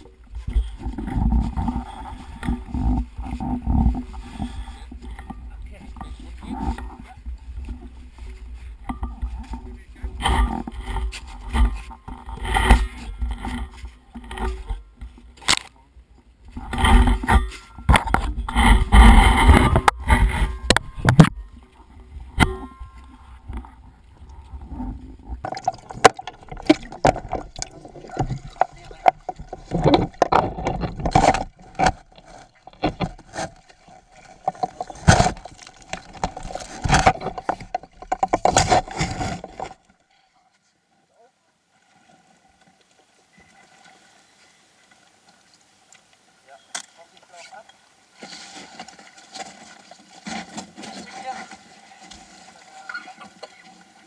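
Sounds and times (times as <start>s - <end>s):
muffled rubbing and knocking: 0.0s - 15.2s, 16.5s - 39.8s
water splashing against camera housing: 24.7s - 39.8s.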